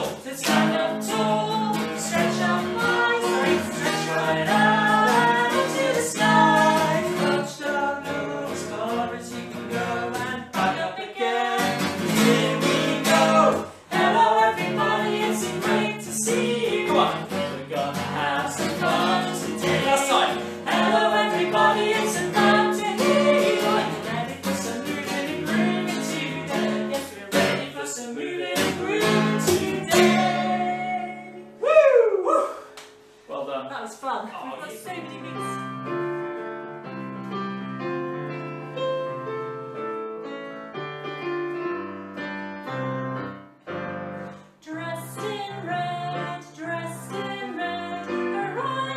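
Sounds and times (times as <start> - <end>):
strummed acoustic guitar: 0.0 - 31.5
man and woman singing: 0.0 - 32.6, 33.3 - 35.6, 44.7 - 48.9.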